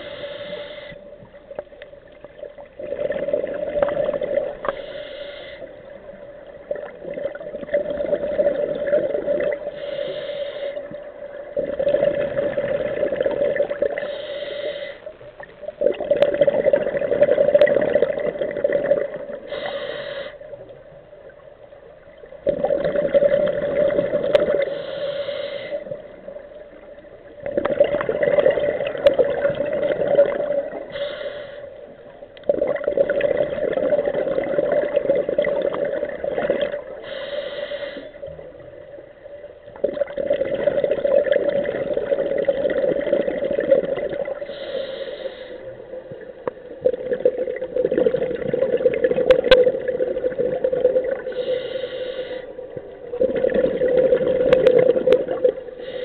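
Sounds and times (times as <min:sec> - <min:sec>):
scuba regulator inhale hiss: 0:00.0 - 0:01.1, 0:04.6 - 0:05.8, 0:09.6 - 0:11.0, 0:14.0 - 0:15.1, 0:19.4 - 0:20.6, 0:24.6 - 0:26.0, 0:30.8 - 0:31.9, 0:37.0 - 0:38.3, 0:44.4 - 0:45.9, 0:51.2 - 0:52.6, 0:55.8 - 0:56.0
exhaled bubbles rushing: 0:02.2 - 0:04.7, 0:06.2 - 0:09.7, 0:10.8 - 0:14.1, 0:15.7 - 0:19.5, 0:22.2 - 0:24.7, 0:26.0 - 0:30.9, 0:32.4 - 0:37.0, 0:39.8 - 0:44.5, 0:46.0 - 0:51.5, 0:52.8 - 0:55.8.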